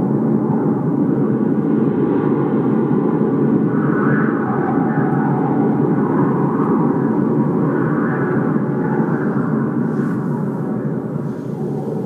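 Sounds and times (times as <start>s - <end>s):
wind blowing across microphone: 0.0s - 12.0s.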